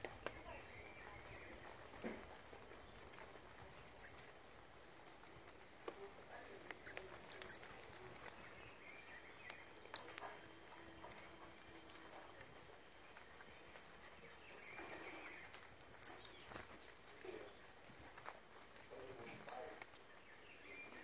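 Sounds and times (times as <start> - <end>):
rapid bird trill: 6.8 - 8.6, 16.0 - 16.8
high bird chirps: 6.8 - 10.2, 13.4 - 15.3, 16.0 - 16.8.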